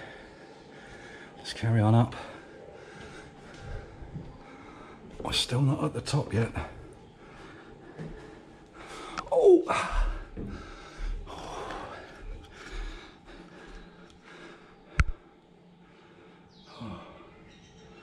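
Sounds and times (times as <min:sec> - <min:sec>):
man panting and gasping: 0:07.2 - 0:15.2
man groaning: 0:09.2 - 0:10.2
sharp click: 0:15.0 - 0:15.2.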